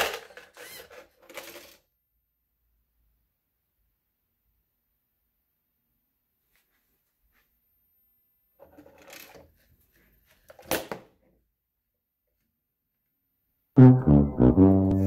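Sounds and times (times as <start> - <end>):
toy motors and gears rattling: 0.0 - 1.8, 8.7 - 9.6
sad trombone sound effect: 13.8 - 15.0.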